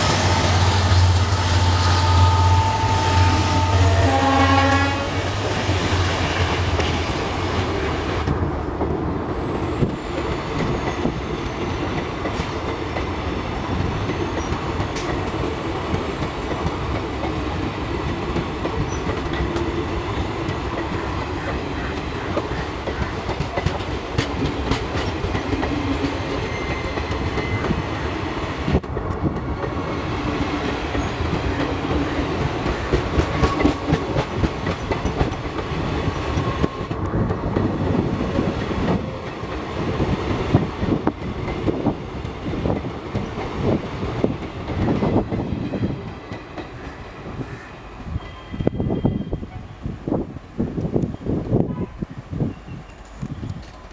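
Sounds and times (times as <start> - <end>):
train running noise: 0.0 - 53.9
train wheels clattering over joints: 20.5 - 27.8, 30.4 - 37.8.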